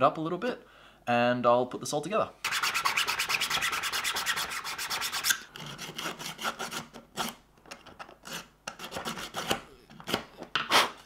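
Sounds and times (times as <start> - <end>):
metal file scraping plastic: 2.5 - 7.4, 8.0 - 11.0.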